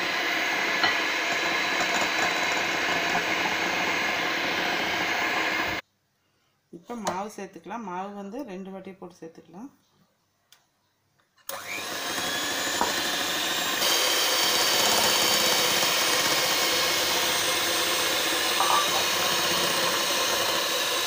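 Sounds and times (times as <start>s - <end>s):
electric hand mixer running: 0.0s - 5.8s, 11.5s - 21.0s.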